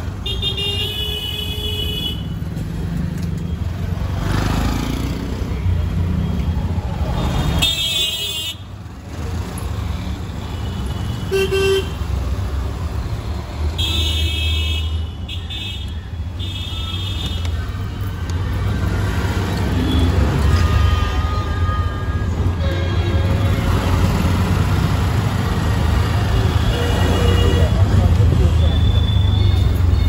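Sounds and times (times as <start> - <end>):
traffic engines running: 0.0 - 30.0
vehicle horns honking: 10.6 - 12.0, 19.8 - 23.8, 26.3 - 28.0.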